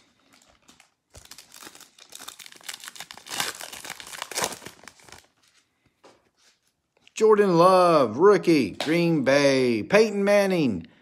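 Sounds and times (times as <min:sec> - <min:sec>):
foil wrapper tearing and crinkling: 0:00.3 - 0:05.4.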